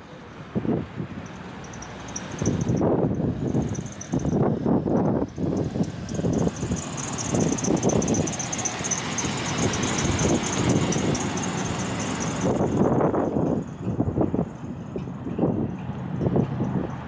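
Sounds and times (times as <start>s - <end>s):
vehicle rolling slowly past: 0.0s - 17.0s
wind buffeting on microphone: 0.4s - 1.3s, 2.2s - 17.0s
high pulsing squeal: 1.2s - 14.0s.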